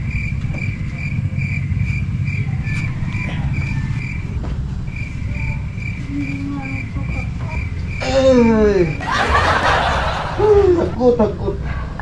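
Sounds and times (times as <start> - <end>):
low motor rumble: 0.0 - 12.0.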